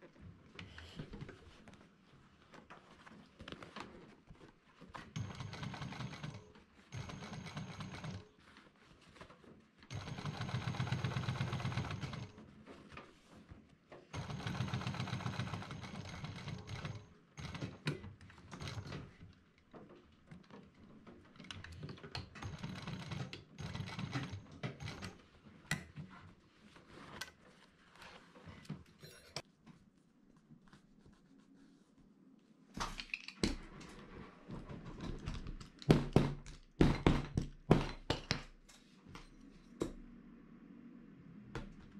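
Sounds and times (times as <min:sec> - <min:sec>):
fabric handling sounds: 0:00.0 - 0:05.2, 0:07.9 - 0:10.0, 0:25.2 - 0:33.0
sewing machine stitching: 0:05.1 - 0:08.4, 0:09.9 - 0:12.4, 0:14.1 - 0:19.2, 0:22.2 - 0:25.2.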